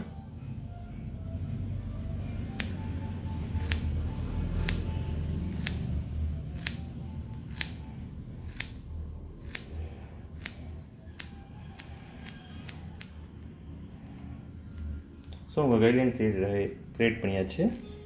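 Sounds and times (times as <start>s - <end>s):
scissors snipping wet hair: 5.6s - 6.0s, 6.6s - 6.9s, 7.5s - 7.8s, 8.4s - 9.8s, 10.4s - 13.2s.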